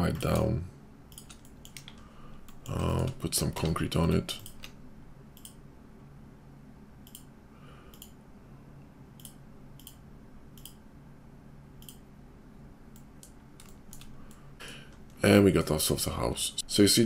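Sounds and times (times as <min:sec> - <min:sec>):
computer mouse clicking: 0:00.0 - 0:00.5, 0:01.1 - 0:04.8, 0:05.4 - 0:05.6, 0:07.0 - 0:07.3, 0:07.9 - 0:08.2, 0:09.2 - 0:10.0, 0:10.6 - 0:10.8, 0:11.8 - 0:12.0, 0:12.9 - 0:15.2
faint low hum: 0:00.0 - 0:17.0.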